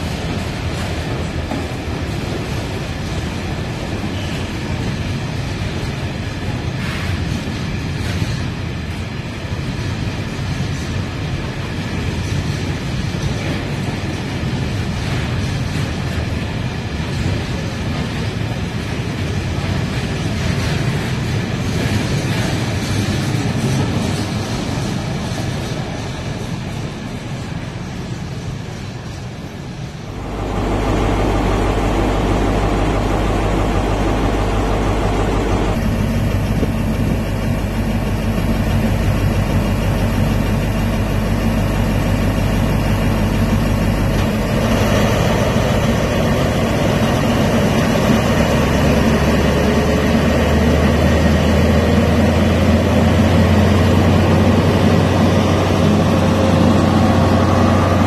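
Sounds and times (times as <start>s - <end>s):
diesel engine humming: 18.8s - 58.0s.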